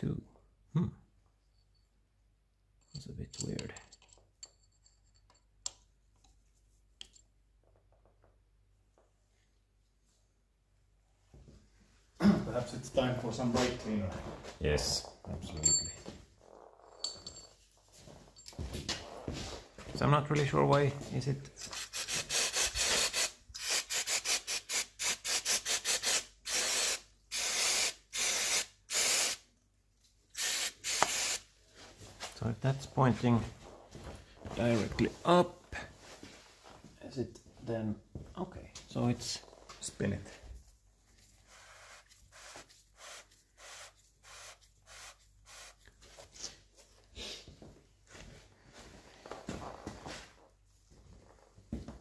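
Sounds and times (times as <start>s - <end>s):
aerosol spray hissing: 21.8s - 29.4s, 30.4s - 31.5s, 41.4s - 45.9s.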